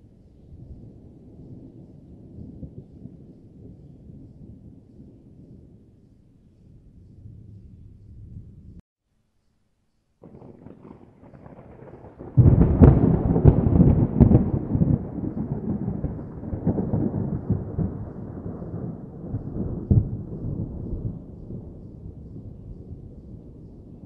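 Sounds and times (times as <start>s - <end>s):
thunder crack: 10.2s - 24.0s
thunder rumbling: 10.2s - 24.0s.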